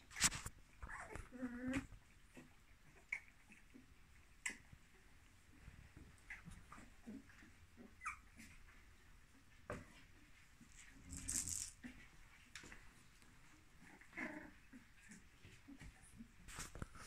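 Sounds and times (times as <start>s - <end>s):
puppy squeaks and whimpers: 0.2s - 3.8s, 7.4s - 8.6s
rustle: 10.1s - 17.0s.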